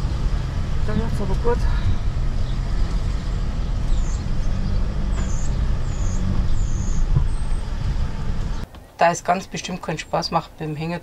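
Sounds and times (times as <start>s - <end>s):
diesel engine rumble: 0.0s - 8.7s.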